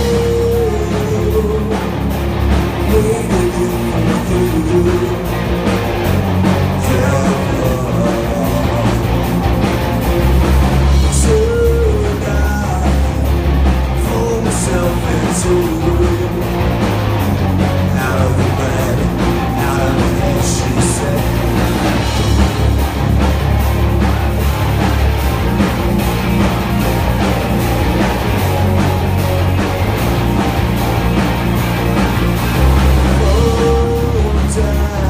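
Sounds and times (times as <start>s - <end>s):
person singing: 0.0s - 2.1s, 2.8s - 5.4s, 6.8s - 9.4s, 11.0s - 13.2s, 14.0s - 16.6s, 17.9s - 22.2s, 33.0s - 35.0s
rock band playing live: 0.0s - 35.0s.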